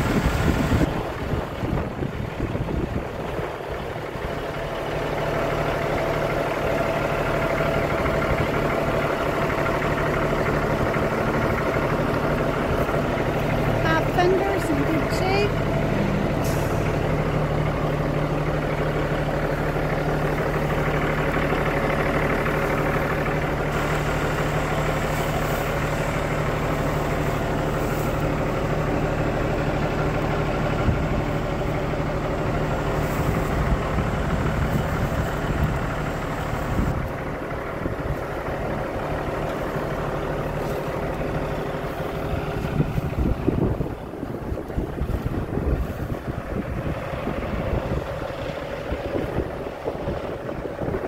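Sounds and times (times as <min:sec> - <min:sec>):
diesel engine idling: 0:00.0 - 0:51.0.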